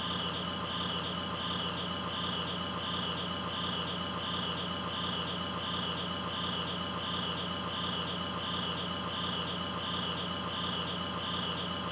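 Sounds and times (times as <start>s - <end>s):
insects chirping: 0.0s - 11.9s.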